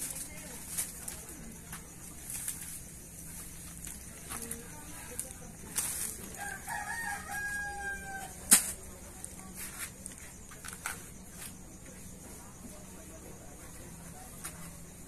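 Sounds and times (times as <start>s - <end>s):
rooster crowing: 6.3s - 8.4s.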